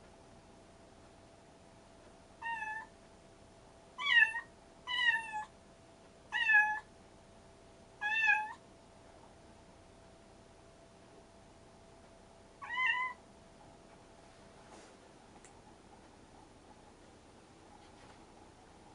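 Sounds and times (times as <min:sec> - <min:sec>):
faint steady hum: 0:00.0 - 0:18.9
cat meowing: 0:02.4 - 0:02.9, 0:04.0 - 0:05.5, 0:06.3 - 0:06.9, 0:08.0 - 0:08.6, 0:12.6 - 0:13.2.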